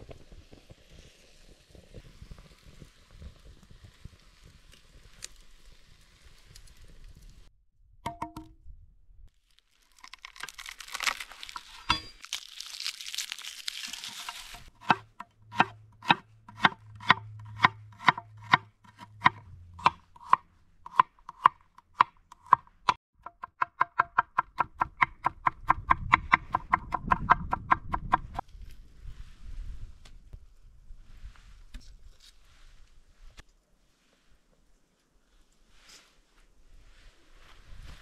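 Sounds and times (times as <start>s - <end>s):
crinkly tearing and rustling: 9.3s - 14.7s.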